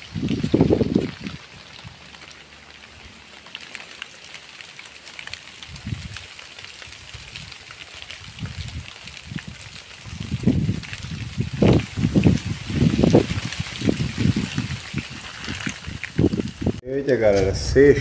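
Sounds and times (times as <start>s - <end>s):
rain drops ticking on a surface: 0.0s - 16.8s
low rumbles: 16.8s - 18.0s.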